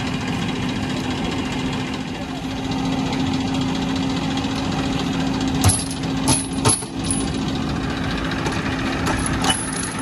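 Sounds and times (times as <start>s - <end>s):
diesel engine rattling: 0.0s - 10.0s
sharp engine knocks: 5.6s - 7.4s.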